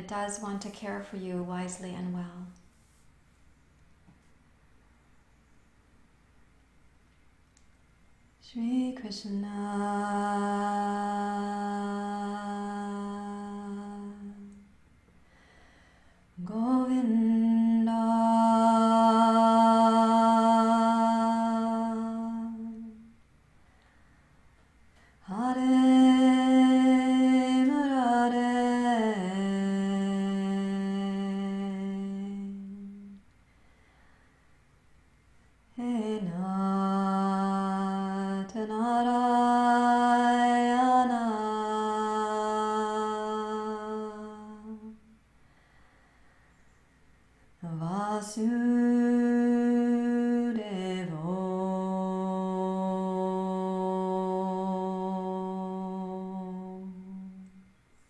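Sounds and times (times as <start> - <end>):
woman chanting: 0.0 - 2.6, 8.4 - 14.7, 16.4 - 23.1, 25.2 - 33.2, 35.8 - 45.0, 47.6 - 57.6
woman singing a held chant note: 47.6 - 57.6.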